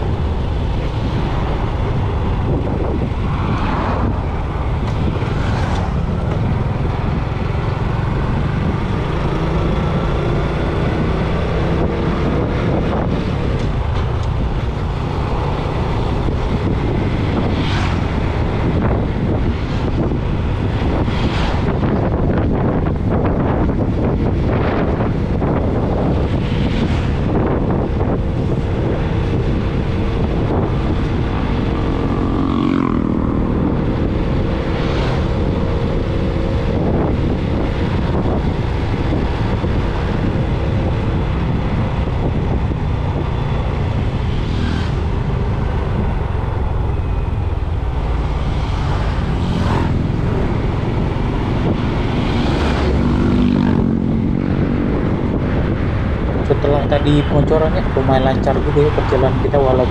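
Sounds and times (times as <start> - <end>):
vehicle engine and tyre noise: 0.0 - 59.9
wind on microphone: 0.0 - 59.9.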